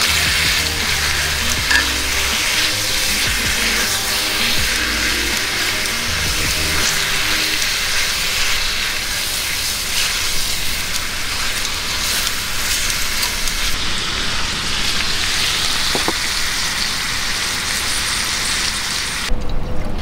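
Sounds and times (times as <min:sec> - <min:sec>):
meat sizzling in a skillet: 0:00.0 - 0:19.3.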